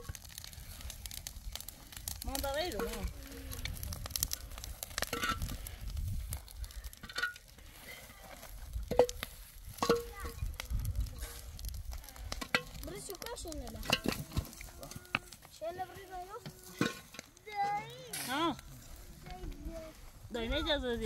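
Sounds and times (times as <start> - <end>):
concrete blocks scraping and knocking: 7.0 - 10.4, 13.7 - 18.5.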